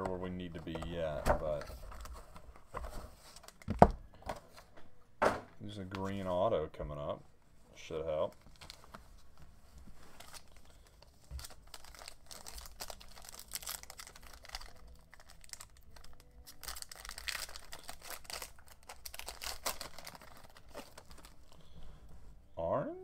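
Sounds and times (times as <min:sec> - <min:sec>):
foil wrapper crinkling and tearing: 0:08.2 - 0:09.0, 0:10.1 - 0:21.7.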